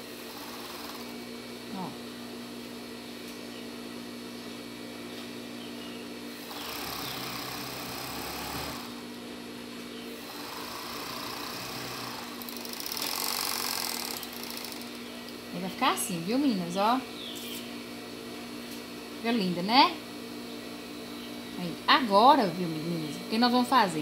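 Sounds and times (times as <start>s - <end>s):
overlock sewing machine stitching: 6.5s - 8.9s, 10.3s - 14.8s.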